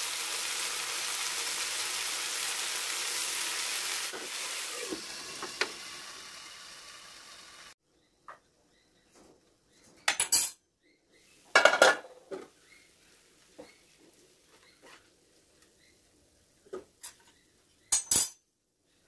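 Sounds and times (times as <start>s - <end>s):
vegetables sizzling in a pan: 0.0s - 7.8s
pan and lid clattering: 11.6s - 12.1s.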